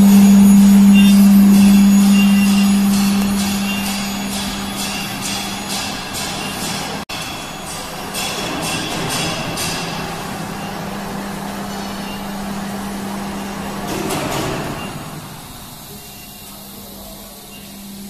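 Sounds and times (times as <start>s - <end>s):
milling machine humming: 0.0s - 18.0s.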